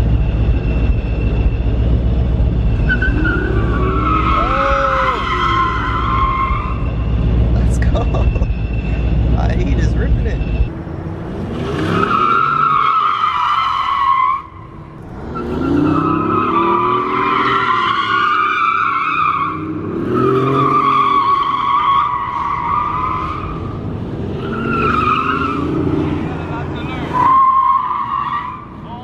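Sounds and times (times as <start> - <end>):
car engine revving: 0.0 - 29.0
tyres squealing: 2.8 - 10.7, 24.4 - 29.0.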